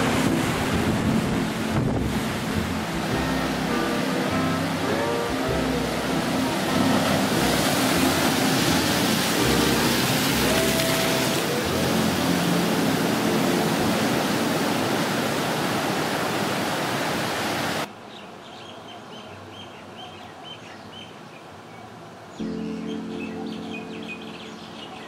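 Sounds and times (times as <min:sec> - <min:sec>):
loud rushing noise: 0:00.0 - 0:16.4
birds chirping: 0:18.1 - 0:25.0.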